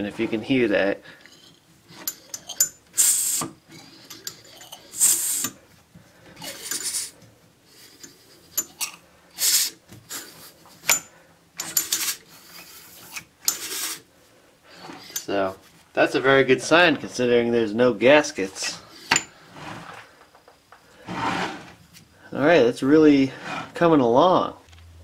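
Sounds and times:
model steam engine puffing hisses: 3.0s - 3.5s, 4.9s - 5.6s, 9.4s - 10.3s, 13.5s - 14.1s.

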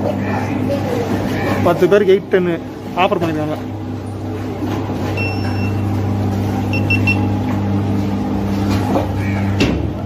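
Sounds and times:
low machine hum: 0.0s - 10.0s
high electronic beeps: 6.7s - 7.3s.

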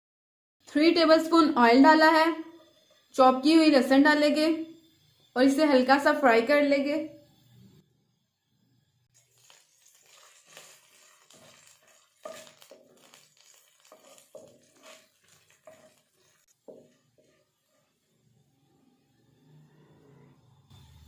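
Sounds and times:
wooden spatula scraping pan: 9.3s - 18.1s.

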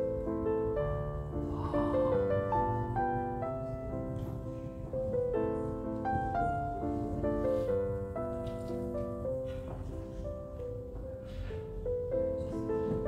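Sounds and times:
piano melody: 0.0s - 13.0s.

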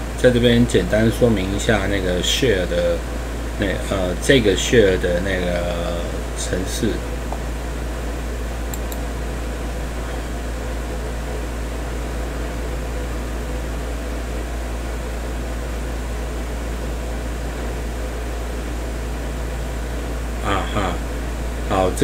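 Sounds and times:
steady low hum: 0.0s - 22.0s
faint clicks: 8.7s - 9.0s.

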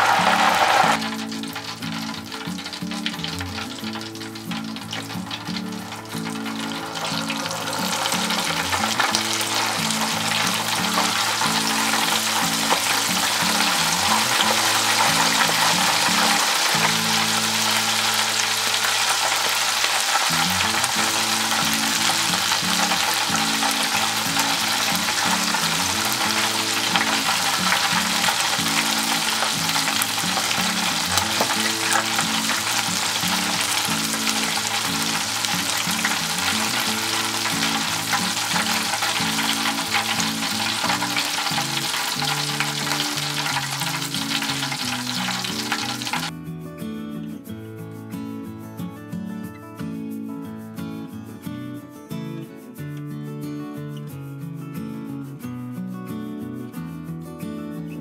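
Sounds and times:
deep-frying sizzle: 0.0s - 46.3s.

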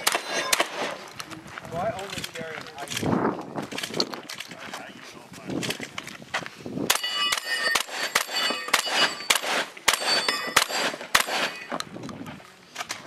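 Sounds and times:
shotgun shots: 0.0s - 1.0s, 6.9s - 11.7s
steel plates clanging: 6.9s - 11.8s.

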